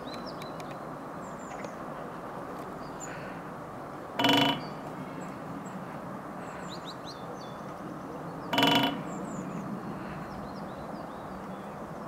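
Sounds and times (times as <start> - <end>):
small birds chirping: 0.0 - 3.5, 4.2 - 12.0
low background noise: 0.0 - 12.0
woodpecker drumming on metal: 4.2 - 5.2, 8.5 - 9.3.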